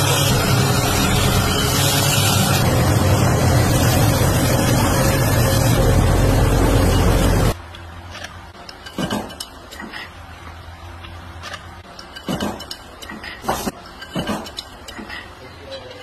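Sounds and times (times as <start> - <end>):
belt grinder grinding steel: 0.0 - 7.6
steel rods clinking together: 11.4 - 16.0.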